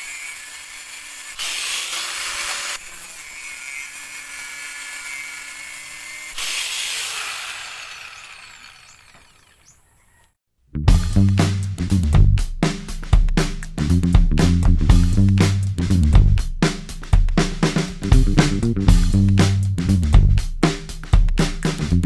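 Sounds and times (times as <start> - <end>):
angle grinder cutting metal: 0.0 - 9.8.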